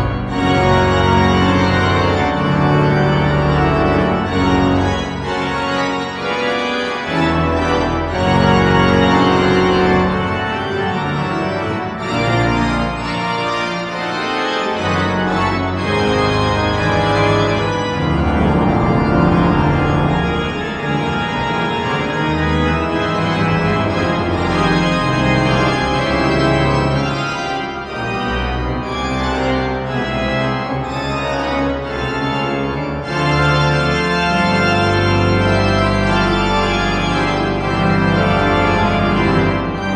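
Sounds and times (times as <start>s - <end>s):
pipe organ chords: 0.0s - 39.9s.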